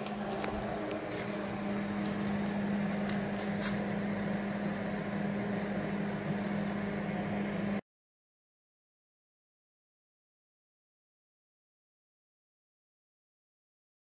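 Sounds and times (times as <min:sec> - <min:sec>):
low mechanical hum: 0:00.0 - 0:07.8.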